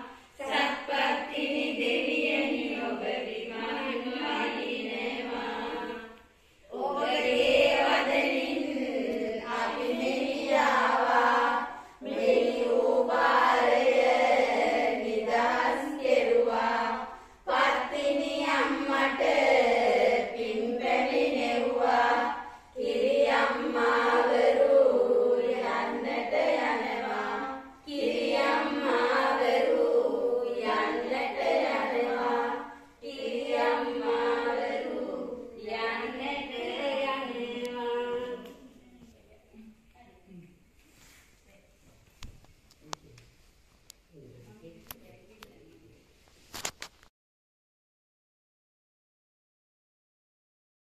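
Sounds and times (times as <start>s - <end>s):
women chanting in unison: 0.0s - 39.6s.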